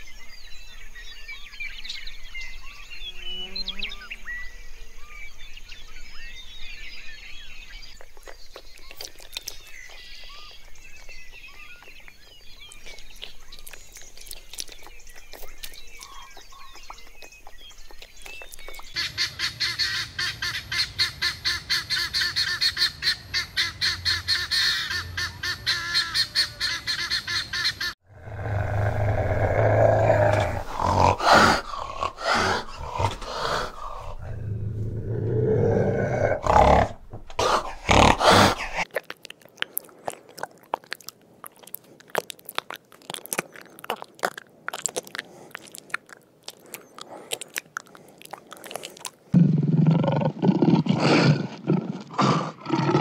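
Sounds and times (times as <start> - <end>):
small birds chirping: 0.0 - 49.7
guineafowl cackling: 19.0 - 28.0
cat growling: 28.1 - 38.9.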